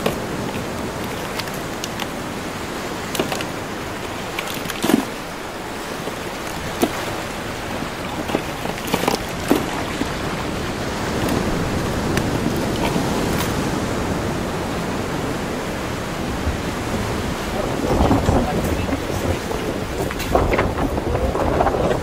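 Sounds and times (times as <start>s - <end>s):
mussel shells clicking in a cooler: 0.0s - 2.1s, 3.0s - 5.2s, 8.0s - 10.2s.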